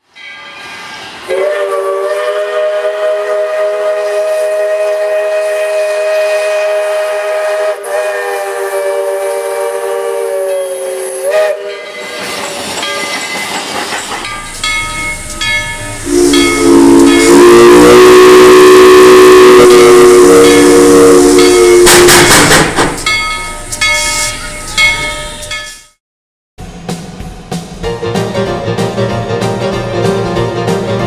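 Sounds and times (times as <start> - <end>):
steam hissing: 0.4 - 25.7
steam locomotive whistle: 1.2 - 12.7, 14.4 - 22.6, 23.4 - 25.6
music: 26.6 - 31.0.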